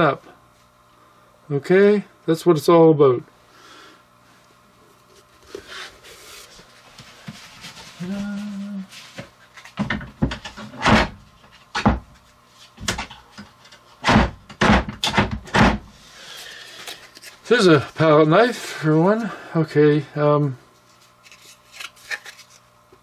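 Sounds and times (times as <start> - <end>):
person humming: 8.0 - 8.9
knocks and thumps: 9.8 - 12.2, 12.8 - 15.9.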